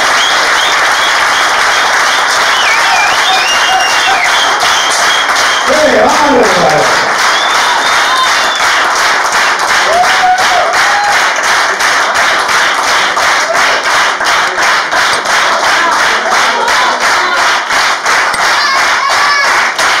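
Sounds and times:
audience clapping in rhythm: 0.0 - 20.0
people shouting approval: 9.8 - 11.2, 18.5 - 19.6.

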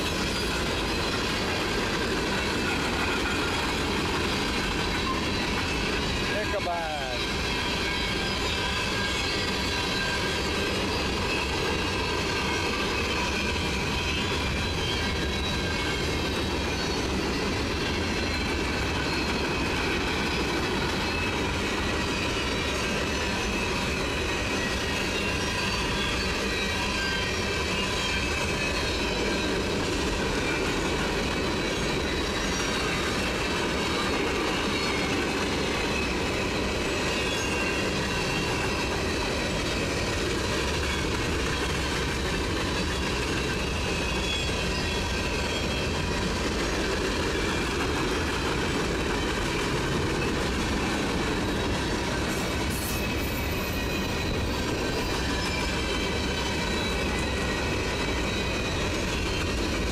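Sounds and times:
train wheels rumbling on rail: 0.0 - 59.9
high-pitched wheel squeal: 33.7 - 39.1, 50.2 - 59.8.

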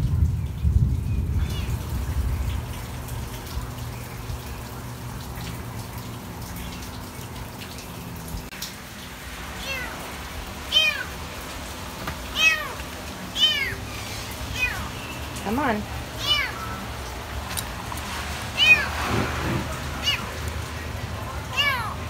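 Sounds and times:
steady rain: 0.0 - 22.0
kitten mewing: 10.7 - 11.1, 12.3 - 12.8, 13.4 - 13.8, 16.2 - 16.9, 18.6 - 19.0, 20.0 - 20.4, 21.5 - 22.0.

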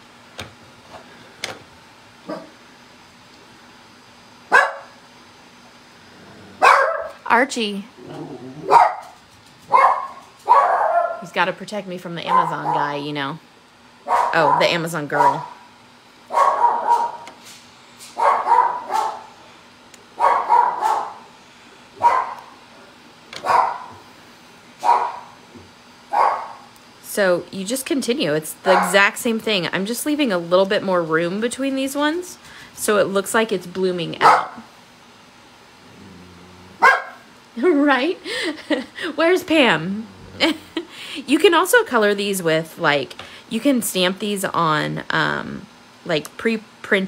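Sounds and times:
dog barking: 2.3 - 2.6, 4.5 - 5.0, 6.6 - 7.2, 8.6 - 11.2, 12.3 - 13.0, 14.0 - 15.6, 16.3 - 17.3, 18.2 - 19.3, 20.2 - 21.3, 22.0 - 22.5, 23.4 - 24.0, 24.8 - 25.3, 26.1 - 26.6, 28.7 - 29.0, 34.2 - 34.7, 36.8 - 37.3.

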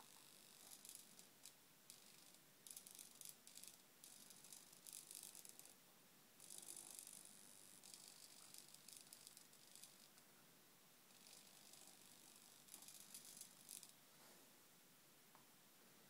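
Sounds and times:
small servo whirring: 0.0 - 5.8, 6.4 - 10.2, 11.1 - 14.0.

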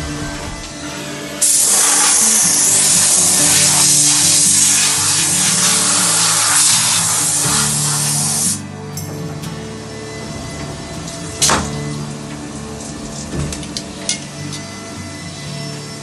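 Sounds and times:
machine spraying hiss: 0.0 - 10.3
background music: 0.0 - 16.0.

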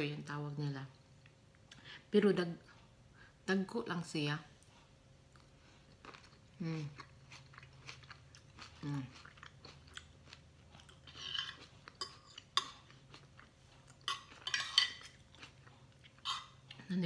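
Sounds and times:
chewing: 4.6 - 16.9
cutlery scraping on ceramic plate: 14.1 - 15.2.

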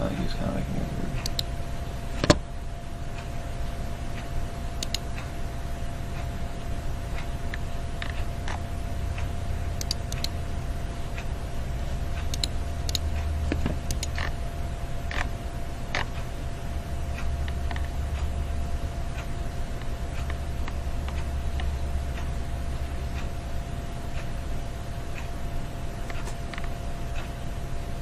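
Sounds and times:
faint steady whine: 0.0 - 28.0
steady low rumble: 0.0 - 28.0
small clicks and creaks: 7.2 - 8.6, 15.1 - 15.3, 15.9 - 16.2, 17.2 - 17.9, 26.0 - 27.3.

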